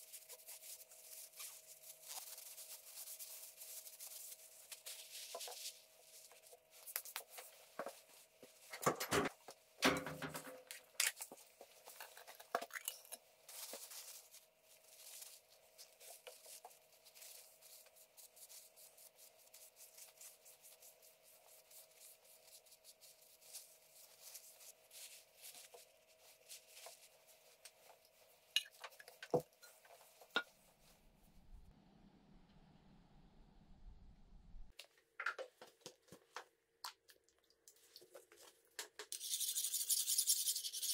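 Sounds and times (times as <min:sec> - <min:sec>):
paper towel and cloth rustling: 0:00.0 - 0:08.8, 0:13.4 - 0:31.0.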